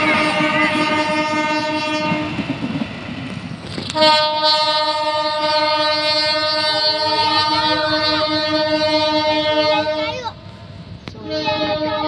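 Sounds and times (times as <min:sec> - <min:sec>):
train horn blast: 0:00.0 - 0:02.5, 0:03.8 - 0:10.3, 0:11.0 - 0:12.0.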